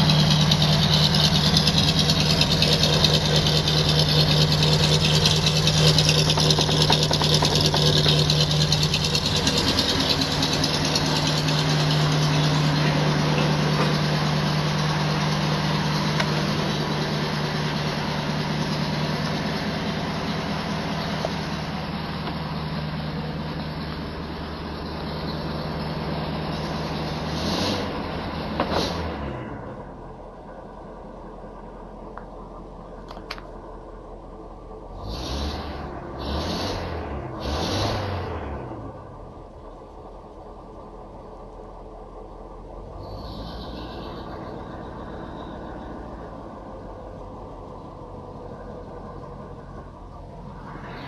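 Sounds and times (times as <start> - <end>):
engine knocks: 0.0 - 26.0
car engine idling: 0.0 - 51.0.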